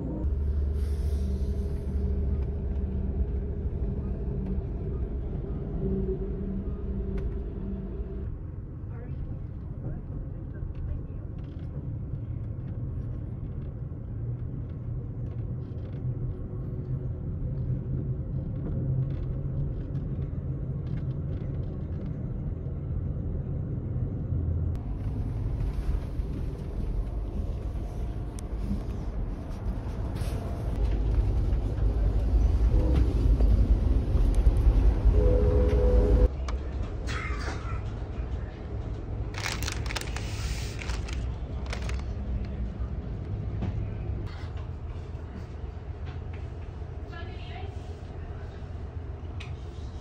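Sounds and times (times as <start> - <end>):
train wheels rumbling: 24.8 - 49.6.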